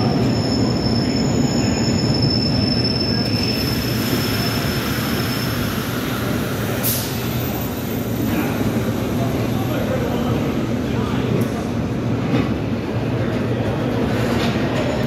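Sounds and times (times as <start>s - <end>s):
high wheel squeal: 0.0s - 8.1s
train wheels rumbling on rail: 0.0s - 15.0s.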